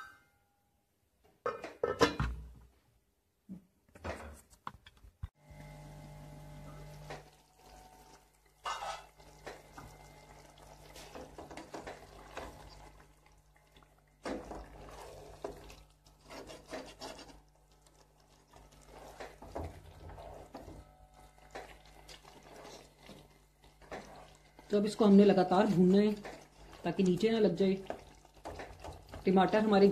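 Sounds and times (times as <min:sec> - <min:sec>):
spatula scraping in a pan: 0:08.6 - 0:09.2, 0:10.8 - 0:13.1, 0:14.2 - 0:29.9.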